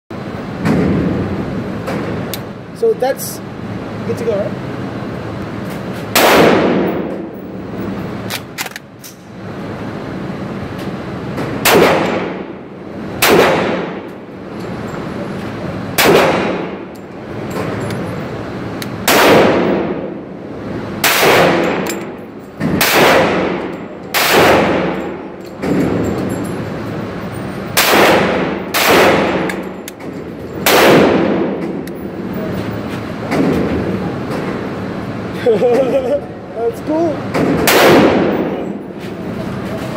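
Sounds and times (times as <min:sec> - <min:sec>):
gunshots echoing indoors: 0:06.1 - 0:07.6, 0:11.6 - 0:14.2, 0:16.0 - 0:16.9, 0:19.0 - 0:20.3, 0:21.0 - 0:26.3, 0:27.7 - 0:29.8, 0:30.6 - 0:31.9, 0:37.3 - 0:38.8.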